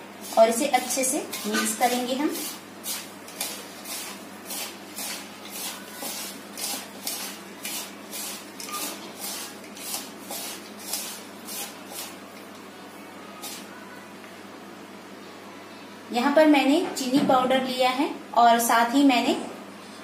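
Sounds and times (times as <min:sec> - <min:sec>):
hand mixing dry semolina: 0:00.0 - 0:12.6, 0:13.4 - 0:13.8.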